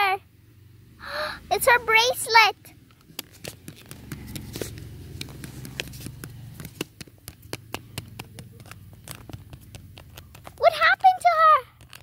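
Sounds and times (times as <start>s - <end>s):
light taps and clicks of toys: 2.8s - 12.0s.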